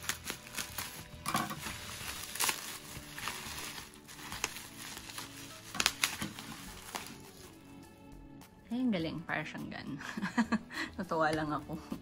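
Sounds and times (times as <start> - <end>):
bubble wrap crinkling: 0.0 - 7.8
soft background music: 0.0 - 12.0.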